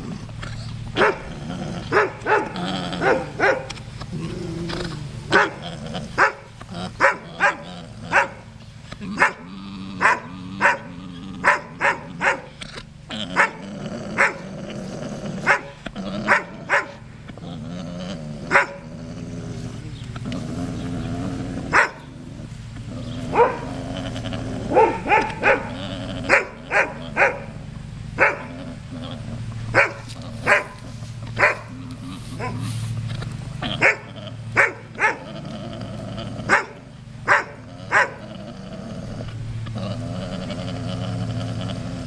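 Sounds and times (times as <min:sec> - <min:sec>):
dog barking: 0:01.0 - 0:01.3, 0:01.9 - 0:03.8, 0:05.3 - 0:05.6, 0:06.2 - 0:08.4, 0:09.2 - 0:09.4, 0:10.0 - 0:12.5, 0:14.2 - 0:14.4, 0:15.5 - 0:17.0, 0:18.5 - 0:18.8, 0:21.7 - 0:22.0, 0:23.3 - 0:23.7, 0:24.7 - 0:27.5, 0:28.2 - 0:28.5, 0:29.8 - 0:30.8, 0:31.4 - 0:31.7, 0:33.8 - 0:35.2, 0:36.5 - 0:38.2.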